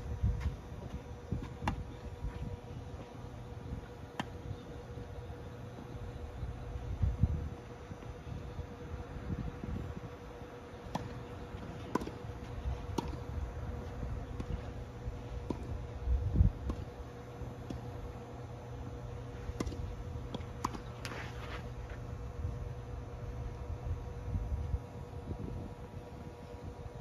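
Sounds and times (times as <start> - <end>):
wind rumble on microphone: 0.0 - 5.1, 6.0 - 10.4, 11.0 - 17.1, 22.1 - 27.0
steady hum: 0.0 - 27.0
tennis balls struck and bouncing: 0.4 - 2.0, 3.8 - 4.5, 10.8 - 14.8, 15.4 - 15.9, 16.5 - 18.2, 19.5 - 21.2.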